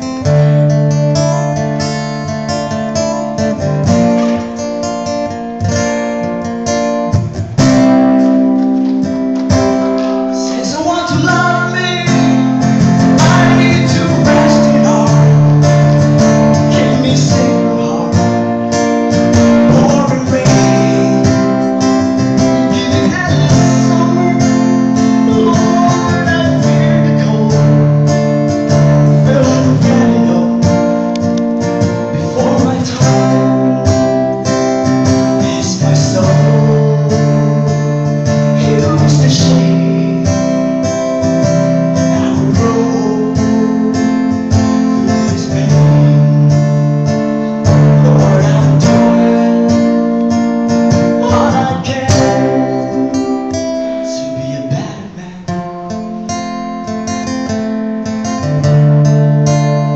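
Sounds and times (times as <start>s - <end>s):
strummed guitar: 0.0s - 59.9s
man singing a ballad: 10.2s - 31.1s, 31.8s - 50.2s, 50.8s - 55.7s.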